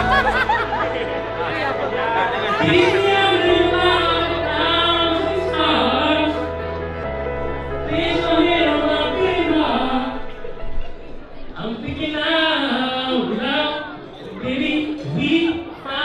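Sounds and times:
instrumental backing with bass: 0:00.0 - 0:11.5
man singing into microphone: 0:02.6 - 0:06.7, 0:07.7 - 0:10.5, 0:11.6 - 0:16.0.

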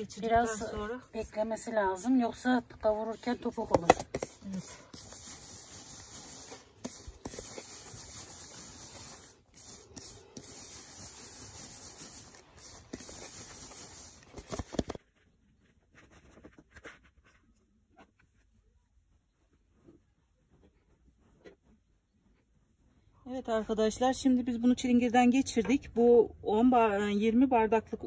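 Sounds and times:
dough rubbed through colander: 0:00.1 - 0:15.0, 0:18.1 - 0:24.4.

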